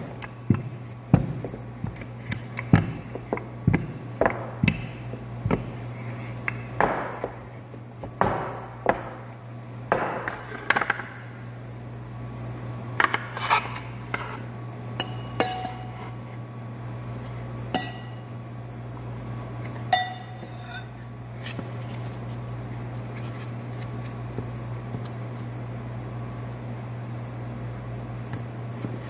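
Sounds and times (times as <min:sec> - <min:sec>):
steady low hum: 0:00.0 - 0:29.0
utensils clinking on dishes: 0:15.0 - 0:16.2, 0:19.9 - 0:21.0.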